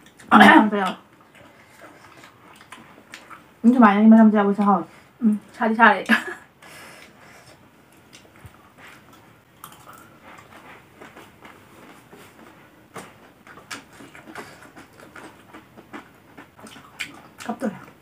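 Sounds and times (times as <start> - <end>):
chewing crunchy food: 1.1 - 3.5, 7.0 - 18.0.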